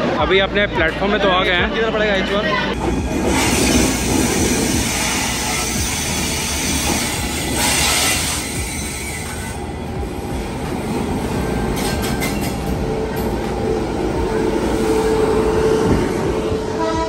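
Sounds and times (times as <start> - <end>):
train rumbling: 2.7 - 17.0
train wheels squealing: 3.3 - 9.6.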